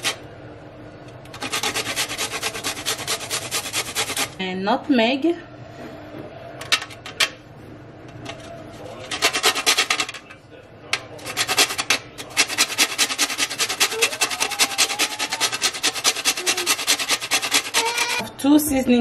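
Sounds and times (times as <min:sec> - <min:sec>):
nutmeg grating on metal grater: 0:00.0 - 0:00.2, 0:01.3 - 0:04.4, 0:08.3 - 0:10.2, 0:11.2 - 0:18.2.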